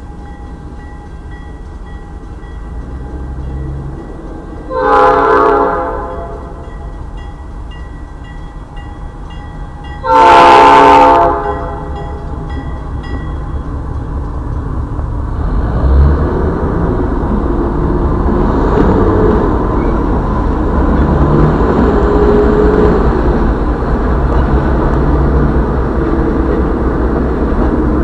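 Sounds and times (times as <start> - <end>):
crossing warning bell dinging: 0.0 - 15.2, 21.8 - 28.0
low rumble of train: 0.0 - 28.0
locomotive air horn blasts: 4.7 - 6.7, 10.0 - 12.0.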